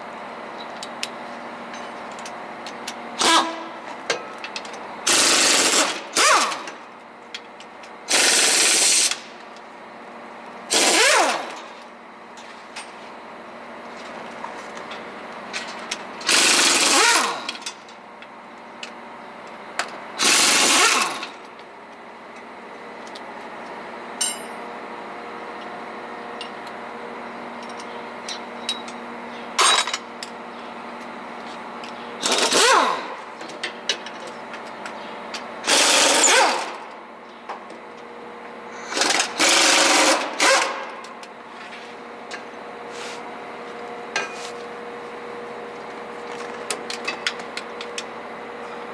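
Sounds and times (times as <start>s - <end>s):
pneumatic impact wrench bursts: 3.2s - 3.7s, 5.0s - 6.8s, 8.1s - 9.3s, 10.7s - 11.7s, 16.2s - 17.6s, 20.2s - 21.4s, 32.2s - 33.2s, 35.6s - 36.8s, 38.7s - 41.0s.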